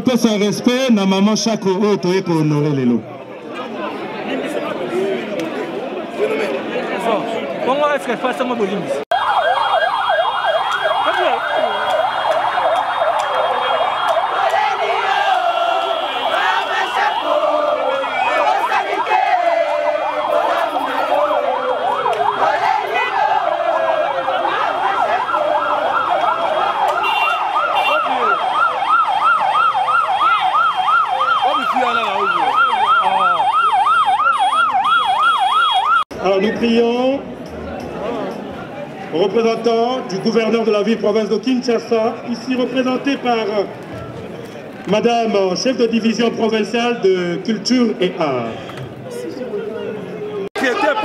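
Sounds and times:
siren yelping: 0:09.1 - 0:36.2
voices: 0:10.6 - 0:29.0, 0:30.0 - 0:35.2, 0:36.2 - 0:51.0.

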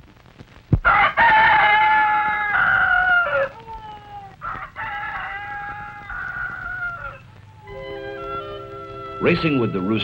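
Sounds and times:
rooster crowing: 0:00.8 - 0:08.6.

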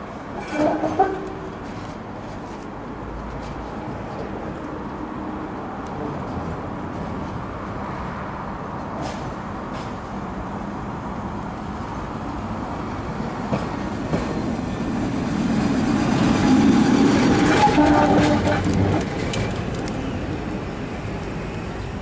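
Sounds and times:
tram passing: 0:00.0 - 0:22.0
wheels clicking on rails: 0:15.3 - 0:22.0.

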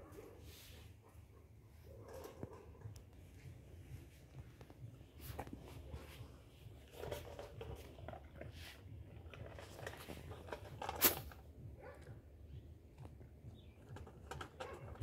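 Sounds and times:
dog chewing and crunching: 0:05.4 - 0:12.2.

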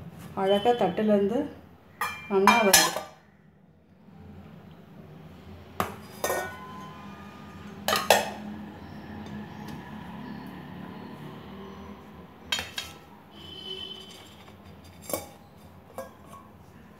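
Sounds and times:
steel plates clinking: 0:06.1 - 0:06.8.

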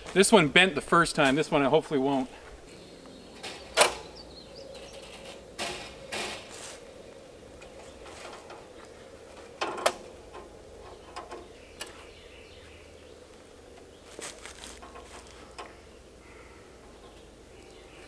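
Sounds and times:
metal wire creaking and clicking: 0:02.6 - 0:12.1, 0:13.3 - 0:18.0
wire snapping sharply: 0:03.4 - 0:04.1.

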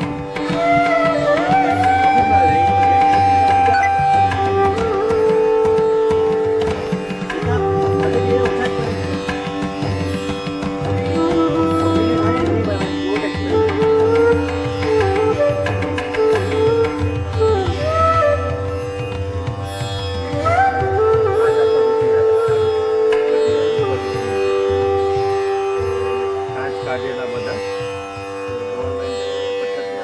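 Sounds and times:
hand drum beats: 0:00.0 - 0:25.0
plucked string melody: 0:00.0 - 0:30.0.

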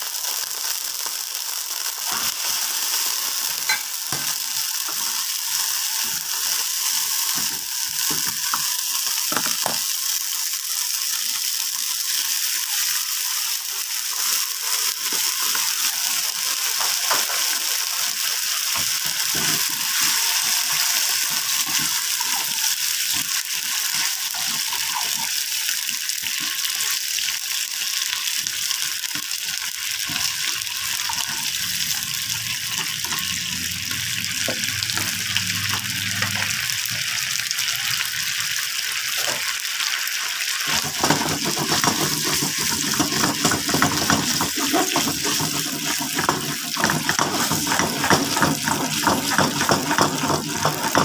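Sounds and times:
food sizzling in hot oil: 0:00.0 - 0:51.0
spatula scraping a pan: 0:18.7 - 0:25.4, 0:40.7 - 0:51.0.

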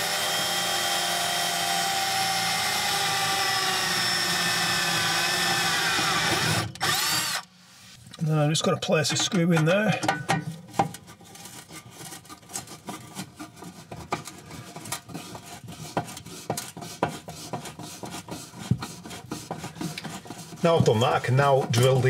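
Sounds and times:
screw scraping into sheet metal: 0:10.7 - 0:22.0.

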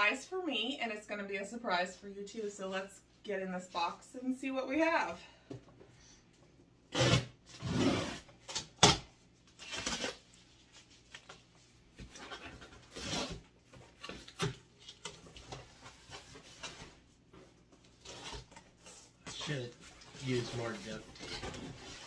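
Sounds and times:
tape tearing off cardboard: 0:06.9 - 0:10.3, 0:12.1 - 0:15.0
cardboard rustling: 0:09.5 - 0:22.0.

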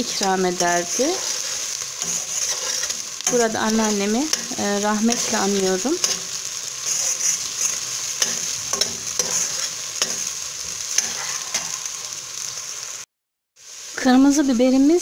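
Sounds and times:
vegetables sizzling in oil: 0:00.0 - 0:15.0
metal spoon scraping a pot: 0:00.6 - 0:10.3.

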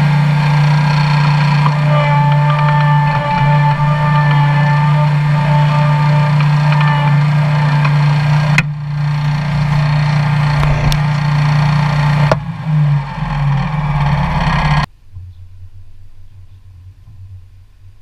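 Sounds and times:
trailer rattling and knocking: 0:00.0 - 0:14.9
truck engine drone: 0:00.0 - 0:14.9
road and wind noise: 0:06.3 - 0:18.0.

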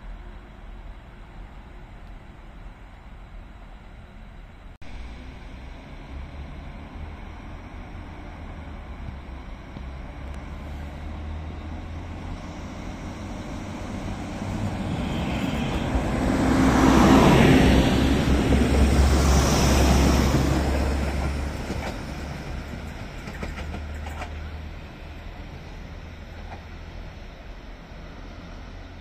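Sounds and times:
diesel train engine droning: 0:00.0 - 0:29.0
train wheels on rails: 0:04.9 - 0:29.0.

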